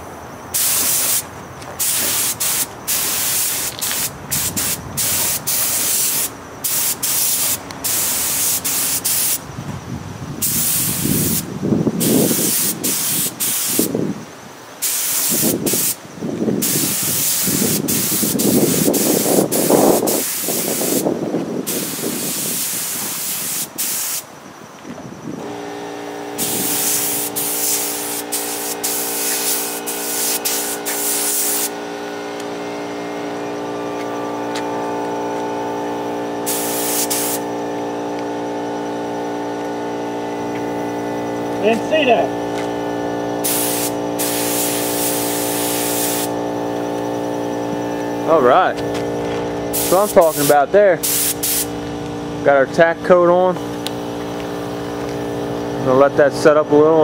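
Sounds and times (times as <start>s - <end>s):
spray gun air hiss: 0.5s - 9.4s, 10.4s - 14.0s, 14.8s - 16.0s, 16.6s - 24.3s, 25.4s - 32.2s, 36.4s - 37.8s, 43.4s - 46.8s, 49.7s - 51.8s
steady mechanical hum: 24.3s - 57.0s.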